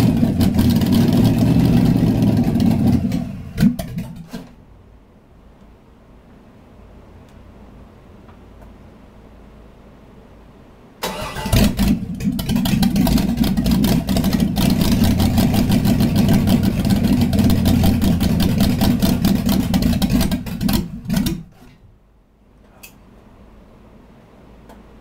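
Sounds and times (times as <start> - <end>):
car engine running: 0.0 - 4.1, 11.6 - 21.5.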